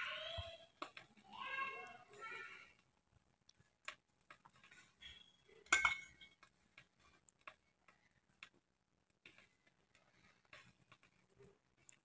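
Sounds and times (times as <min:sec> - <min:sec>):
metal spoon clinking on steel bowl: 0:05.6 - 0:06.4.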